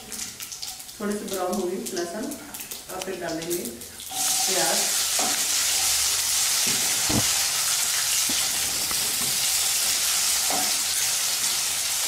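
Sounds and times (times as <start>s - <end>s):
onions sizzling in hot oil: 4.0s - 12.0s.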